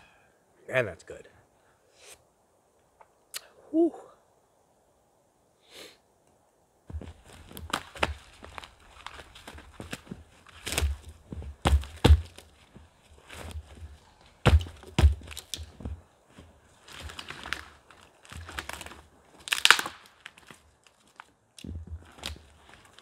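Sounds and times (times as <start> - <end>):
firewood cracking and crunching: 6.9 - 23.0.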